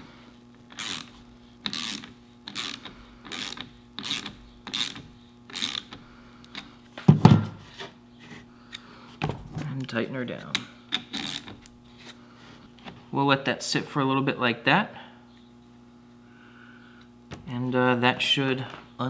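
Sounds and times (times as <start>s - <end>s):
socket ratchet clicking: 0.7s - 6.0s, 10.9s - 11.6s.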